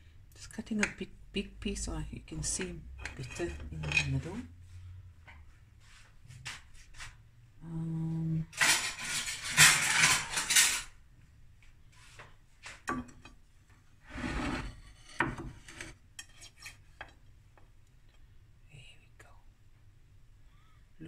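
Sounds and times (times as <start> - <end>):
knife scraping on plate: 2.5 - 4.4, 8.6 - 10.9, 14.1 - 17.2.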